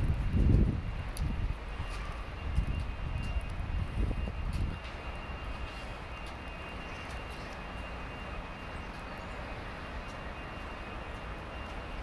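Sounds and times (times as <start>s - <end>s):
faint ticks: 0.4s - 1.3s.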